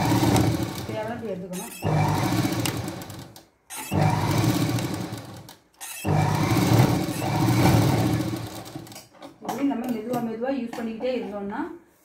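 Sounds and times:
sewing machine running: 0:00.0 - 0:09.1.

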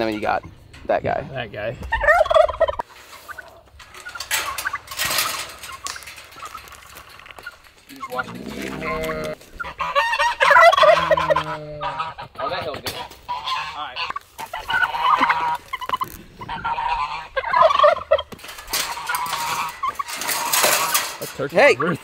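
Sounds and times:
turkey gobbling: 0:01.8 - 0:22.0
low drawn-out animal call: 0:07.9 - 0:12.2.

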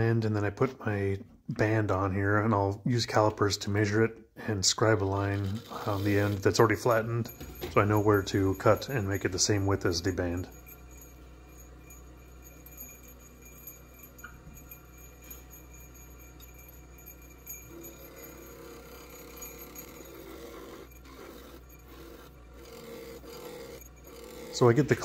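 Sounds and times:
turning tool scraping: 0:04.9 - 0:14.4, 0:15.1 - 0:25.0
lathe humming: 0:05.7 - 0:25.0.

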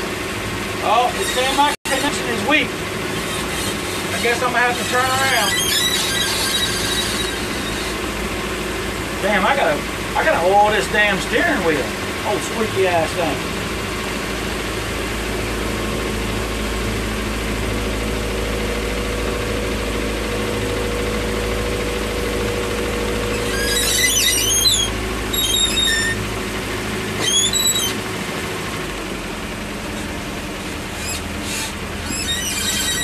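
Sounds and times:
boat engine running: 0:00.0 - 0:33.0
steering squeaking: 0:00.8 - 0:09.6, 0:21.2 - 0:28.7, 0:29.7 - 0:33.0.

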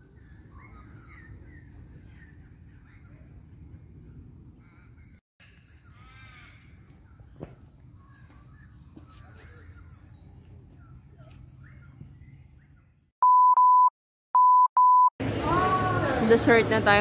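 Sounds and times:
harsh crow-like bird call: 0:05.9 - 0:06.8.

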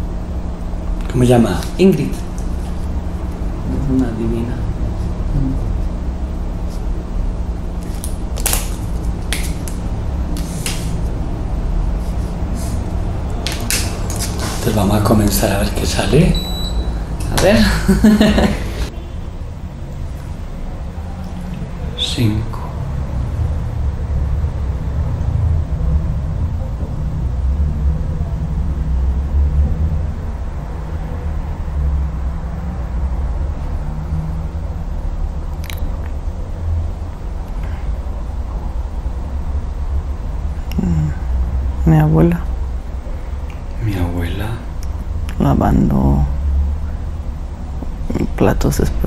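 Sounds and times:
steady low hum: 0:00.0 - 0:49.0
steady low rumble: 0:00.0 - 0:49.0
highlighter scratching on paper: 0:12.0 - 0:13.0.

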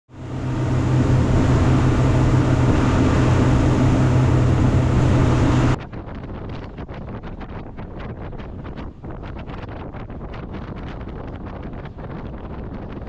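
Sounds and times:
boat engine droning: 0:00.1 - 0:05.8
wind buffeting microphone: 0:00.2 - 0:13.0.

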